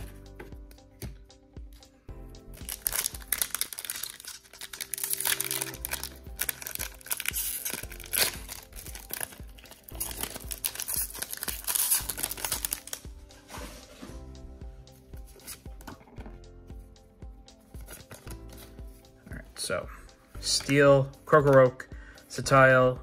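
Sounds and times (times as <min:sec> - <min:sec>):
foil wrapper tearing and crinkling: 0:02.6 - 0:13.0.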